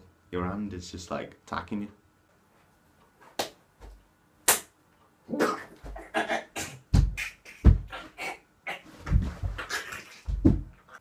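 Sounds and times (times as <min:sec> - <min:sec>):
hand slapping body: 0:03.4 - 0:04.8.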